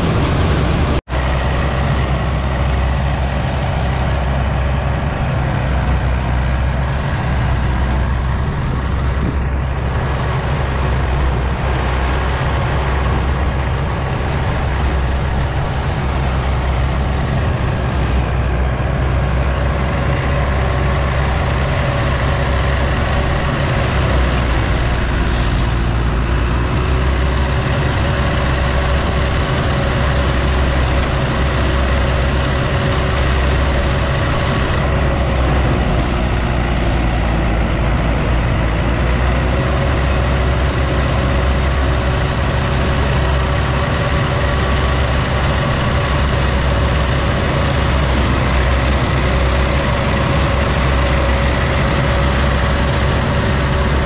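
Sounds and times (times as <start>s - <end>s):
heavy machine engine rumbling: 0.0s - 54.0s.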